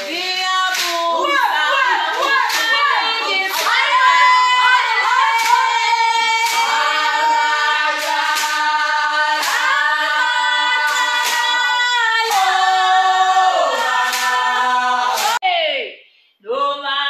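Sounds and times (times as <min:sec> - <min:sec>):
hand clapping: 0:00.0 - 0:12.6, 0:13.8 - 0:14.4, 0:15.1 - 0:15.4
women singing together: 0:00.0 - 0:15.8, 0:16.4 - 0:17.0.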